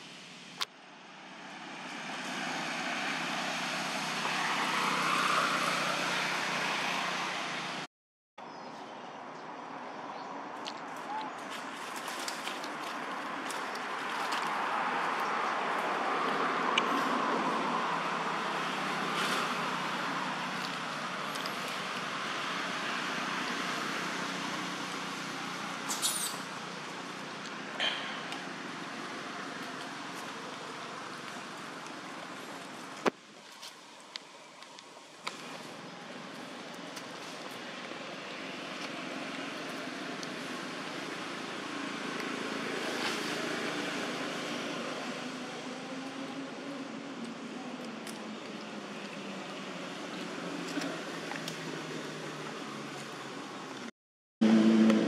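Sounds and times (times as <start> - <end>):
rushing outdoor noise: 0.0 - 55.0
vehicle approaching on road: 0.1 - 7.9, 11.6 - 55.0
brief high squeak: 25.9 - 26.5.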